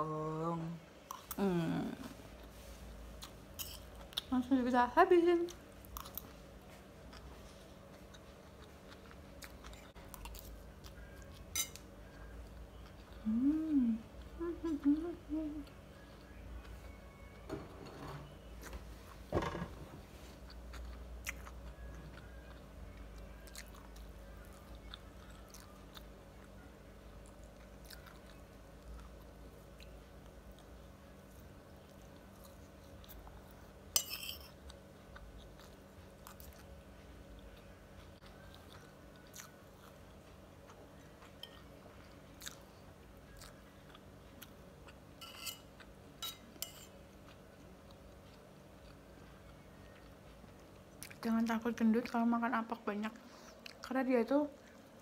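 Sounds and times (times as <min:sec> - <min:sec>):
low steady hum: 0:00.0 - 0:55.0
person chewing: 0:05.8 - 0:16.7, 0:20.3 - 0:33.6, 0:34.4 - 0:51.2.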